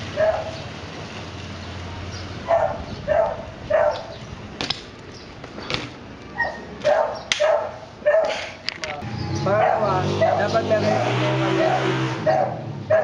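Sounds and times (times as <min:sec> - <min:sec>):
dog barking: 0:00.2 - 0:00.6, 0:02.4 - 0:04.1, 0:06.4 - 0:08.4, 0:09.5 - 0:10.6, 0:11.6 - 0:13.0.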